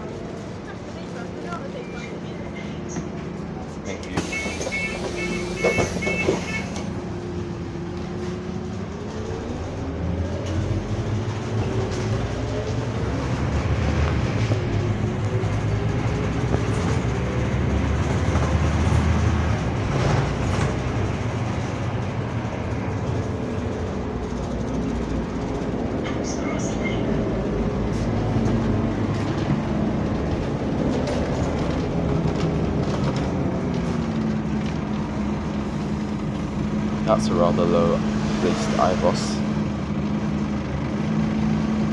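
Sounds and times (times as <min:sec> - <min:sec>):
bus engine rumble: 0:00.0 - 0:41.9
short beeps: 0:04.3 - 0:06.8.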